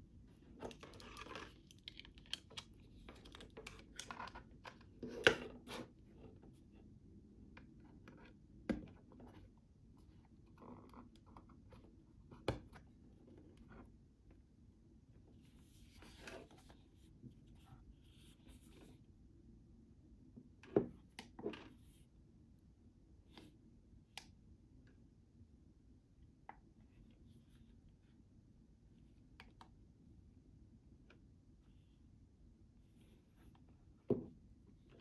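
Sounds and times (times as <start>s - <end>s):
soft rubbing and sliding: 15.3s - 19.1s.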